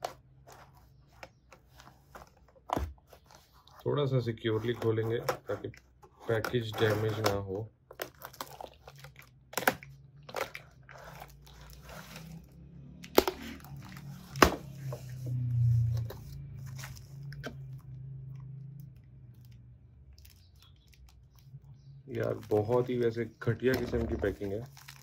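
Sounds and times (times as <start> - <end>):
cardboard rustling: 0.0 - 8.8, 22.1 - 25.0
tape crinkling: 4.4 - 14.8, 15.8 - 25.0
low hum: 11.8 - 20.1.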